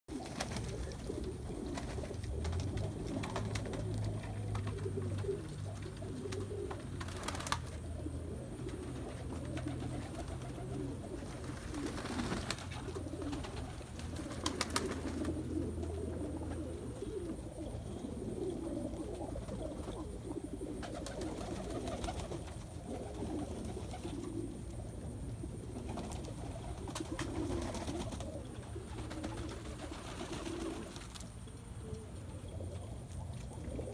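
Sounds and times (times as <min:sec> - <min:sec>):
pigeon wing claps: 0:00.1 - 0:07.8, 0:08.7 - 0:15.6, 0:20.8 - 0:24.3, 0:25.9 - 0:28.4
pigeons cooing: 0:00.1 - 0:33.9.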